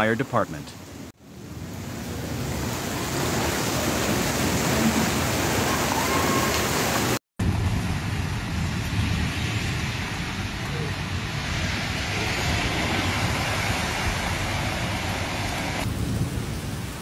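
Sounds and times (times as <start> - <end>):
running floodwater: 0.0 - 16.2
heavy rain: 0.7 - 17.0.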